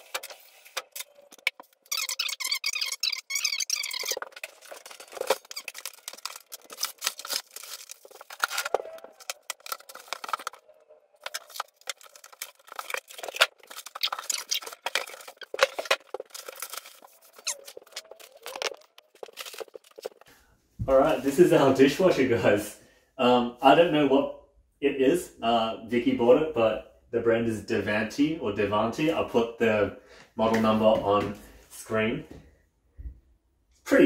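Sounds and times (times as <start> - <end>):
packaging rustling and tearing: 0.0 - 20.3.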